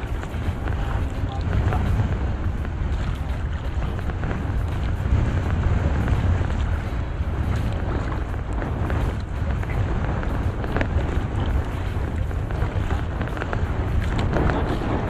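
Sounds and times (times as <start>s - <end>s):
low rumble at sea: 0.0s - 15.0s
wind buffeting microphone: 0.0s - 15.0s.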